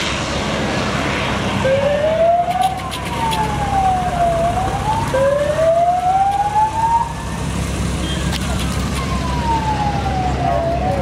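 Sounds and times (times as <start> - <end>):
light aircraft engine drone: 0.0 - 11.0
siren wailing: 1.6 - 7.5, 8.8 - 11.0.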